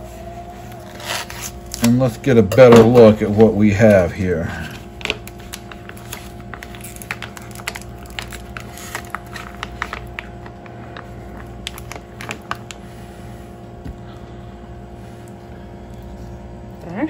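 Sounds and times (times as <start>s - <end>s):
low hum: 0.0s - 17.0s
plastic package crinkling: 0.7s - 12.9s.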